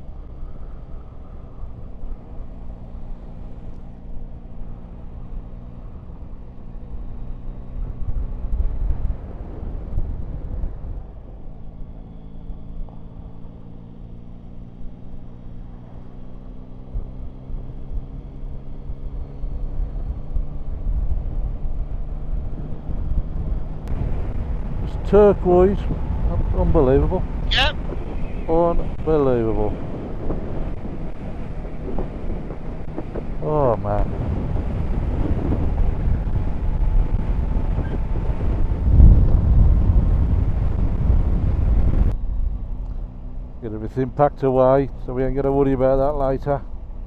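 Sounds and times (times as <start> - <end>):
wind rumbling on microphone: 0.0 - 13.0, 16.8 - 47.0
motorcycle engine running: 0.0 - 47.0.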